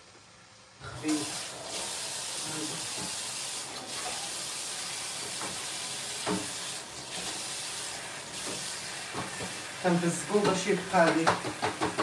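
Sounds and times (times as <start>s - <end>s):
tap water running into sink: 0.9s - 12.0s
knock: 11.1s - 12.0s.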